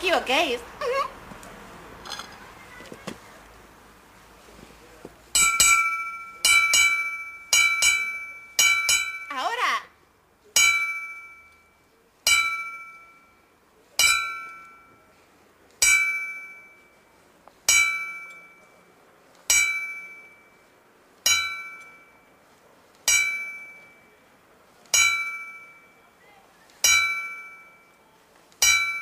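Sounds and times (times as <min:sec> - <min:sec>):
bell striking: 0:05.4 - 0:09.4, 0:10.6 - 0:13.4, 0:14.0 - 0:15.1, 0:15.8 - 0:17.0, 0:17.7 - 0:18.8, 0:19.5 - 0:20.6, 0:21.3 - 0:22.3, 0:23.1 - 0:24.2, 0:25.0 - 0:26.0, 0:26.8 - 0:28.0, 0:28.6 - 0:29.0.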